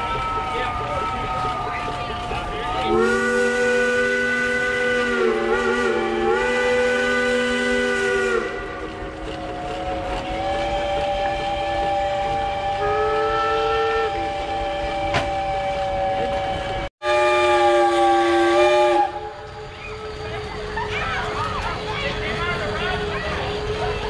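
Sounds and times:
steam whistle chord: 2.9s - 20.0s.

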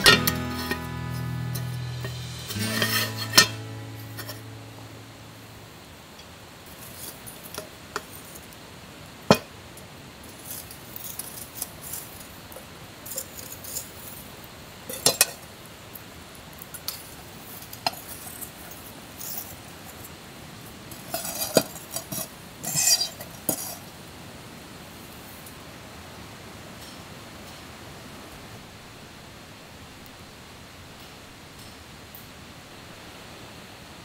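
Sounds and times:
fire crackling: 0.0s - 23.8s.

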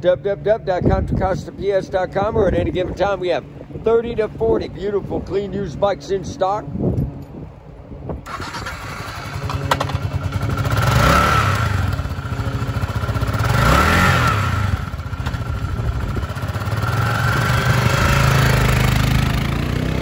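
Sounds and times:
motorcycle engine starting and revving: 8.2s - 20.0s.

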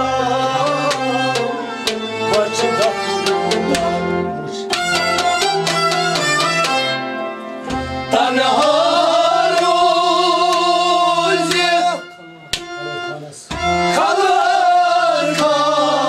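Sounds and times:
folk music on harmonium and strings: 0.0s - 16.0s
hand percussion strokes: 0.8s - 7.0s.

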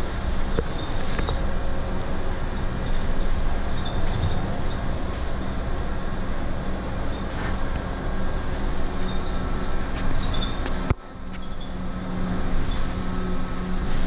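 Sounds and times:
low hum: 0.0s - 14.0s
road and tyre noise rumble: 0.0s - 14.0s
squeaks from interior fittings: 3.7s - 4.9s, 9.0s - 11.9s.

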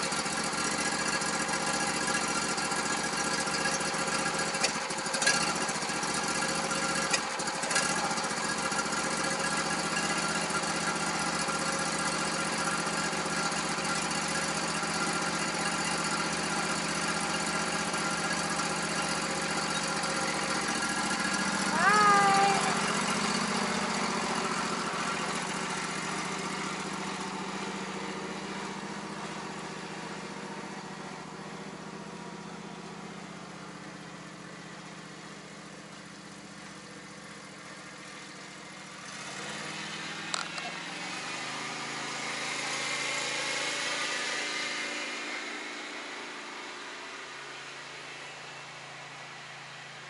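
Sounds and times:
lawn tractor engine running: 0.0s - 50.0s
click: 40.3s - 40.7s.

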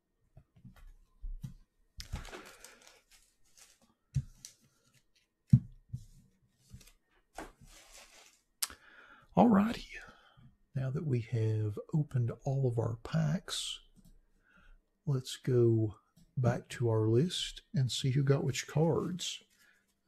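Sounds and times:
cards rustling: 2.0s - 5.3s, 6.7s - 8.4s.

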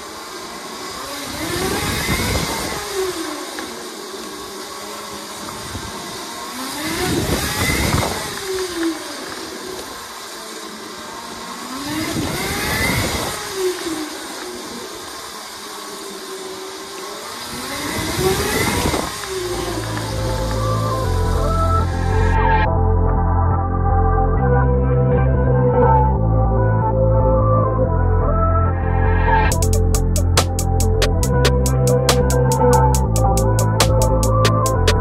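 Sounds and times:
electric motor whine: 0.0s - 22.7s.

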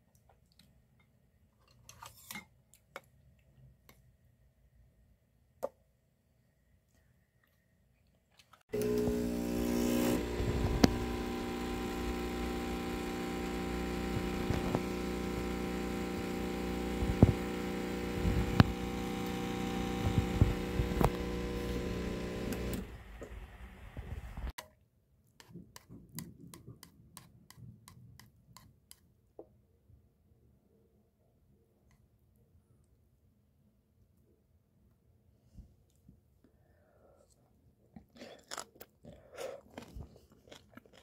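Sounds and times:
espresso machine pump humming: 8.7s - 24.5s
clicks: 10.5s - 12.2s, 12.8s - 23.4s.

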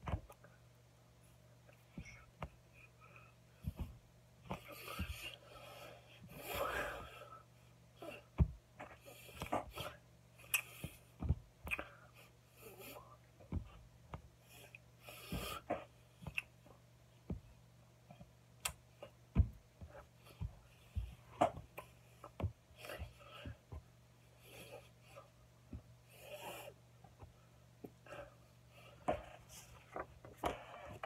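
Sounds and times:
steady low hum: 0.0s - 31.0s
breathy puffs and mouth sounds: 1.8s - 7.4s.

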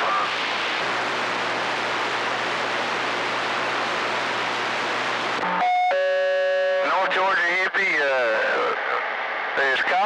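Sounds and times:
radio static hiss: 0.0s - 5.9s, 6.8s - 10.0s.

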